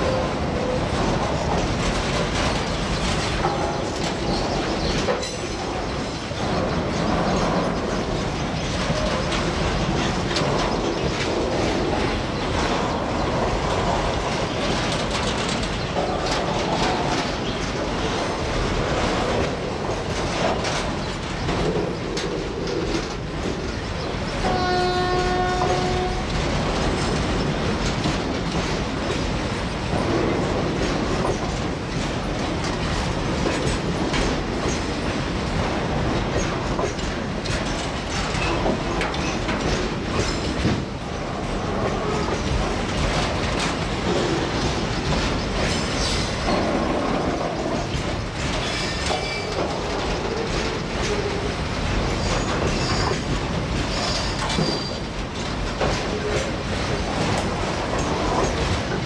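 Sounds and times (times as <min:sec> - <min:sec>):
train wheels clattering on rails: 0:00.0 - 0:59.0
train horn: 0:24.4 - 0:26.4.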